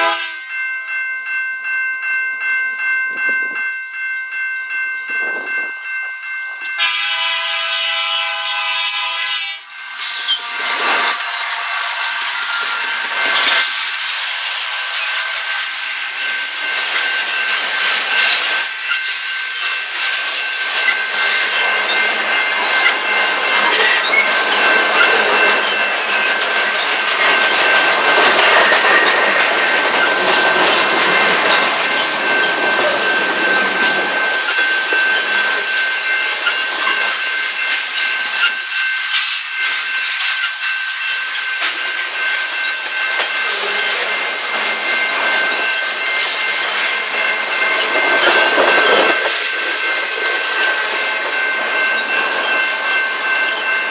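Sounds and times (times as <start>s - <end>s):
train cars clanking: 2.8s - 53.9s
train wheels squealing on rails: 6.7s - 53.9s.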